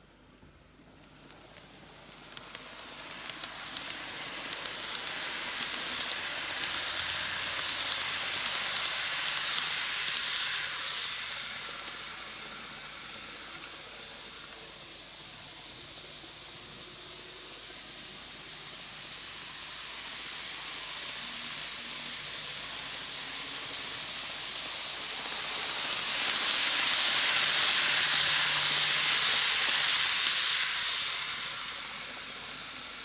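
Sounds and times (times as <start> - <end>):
sharp clicks of wheels: 1.0 - 14.8
model train rattling on rails: 1.0 - 33.0.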